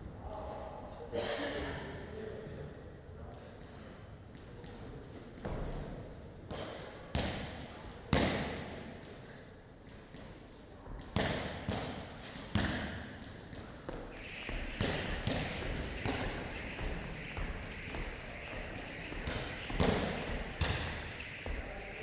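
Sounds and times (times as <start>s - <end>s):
heavy thuds echoing in a hall: 5.4s - 9.0s, 10.9s - 22.0s.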